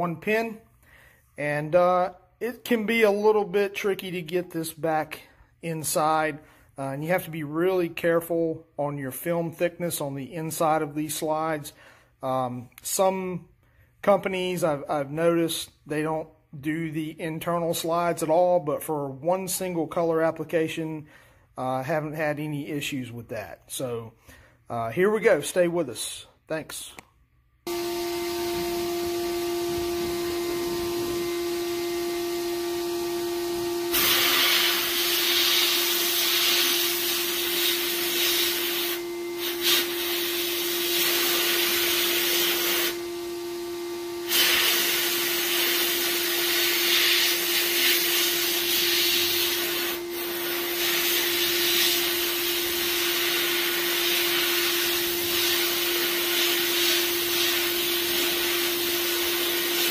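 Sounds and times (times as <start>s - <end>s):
dust collector motor humming: 27.7s - 59.9s
blast gun hissing: 33.9s - 43.0s.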